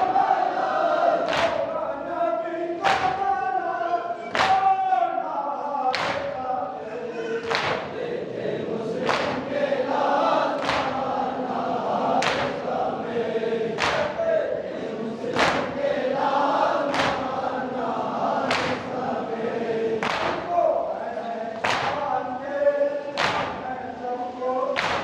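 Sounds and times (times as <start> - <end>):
men chanting together: 0.0 - 25.0
chest-beating slaps: 1.2 - 1.7, 2.8 - 3.2, 4.3 - 4.7, 5.9 - 6.4, 7.4 - 8.0, 9.0 - 9.5, 10.6 - 11.1, 12.1 - 12.7, 13.8 - 14.2, 15.3 - 15.8, 16.8 - 17.4, 18.4 - 18.9, 20.0 - 20.5, 21.6 - 22.0, 23.2 - 23.6, 24.8 - 25.0.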